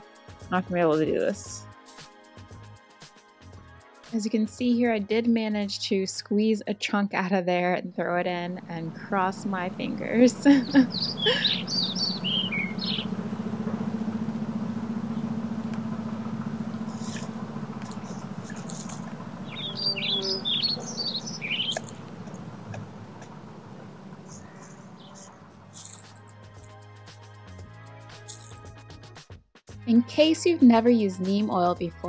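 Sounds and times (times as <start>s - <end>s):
music: 0.0s - 14.2s, 15.0s - 32.0s
steady low hum: 8.4s - 26.3s
birds chirping: 8.6s - 26.3s.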